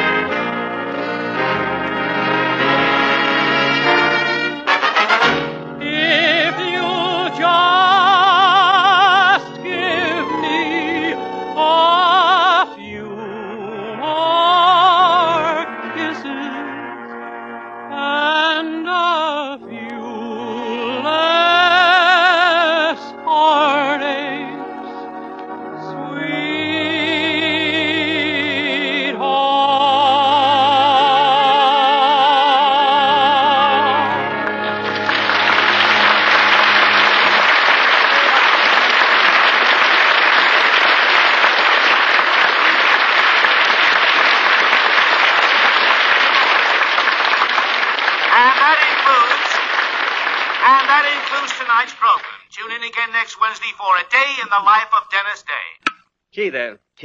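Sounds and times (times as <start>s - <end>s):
musical accompaniment: 0.0s - 56.1s
audience applauding: 1.5s - 5.7s, 34.4s - 52.5s
man singing with vibrato: 4.9s - 17.0s, 17.9s - 24.8s, 25.9s - 34.5s.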